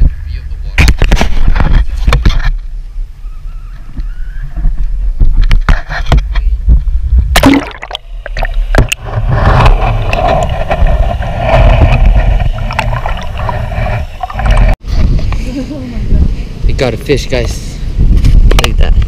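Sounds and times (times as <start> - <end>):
wind rumble on microphone: 0.0 - 19.0
gurgling water: 7.3 - 14.8
water splashing against hull: 7.3 - 14.8
loud splash: 7.4 - 10.5.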